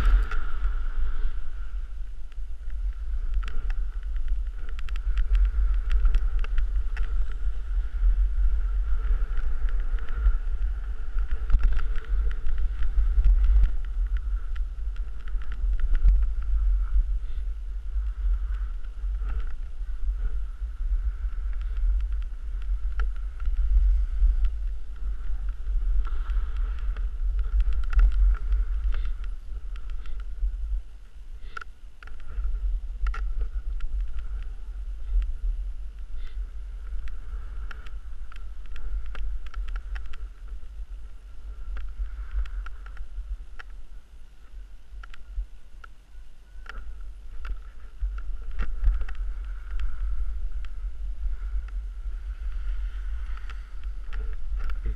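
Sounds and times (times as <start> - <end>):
skis scraping on snow: 0.0 - 2.2, 15.6 - 30.6, 47.7 - 54.9
wind rumble on microphone: 0.0 - 54.9.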